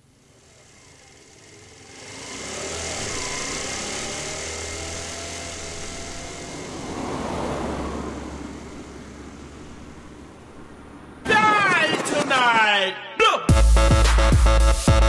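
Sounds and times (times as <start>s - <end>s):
motor scooter engine running: 0.0s - 11.0s.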